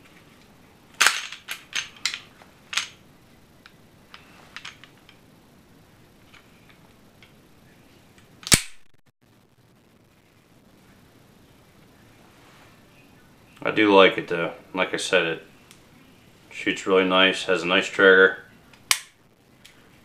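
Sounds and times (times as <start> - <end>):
pistol slide clicks: 18.9 - 19.1.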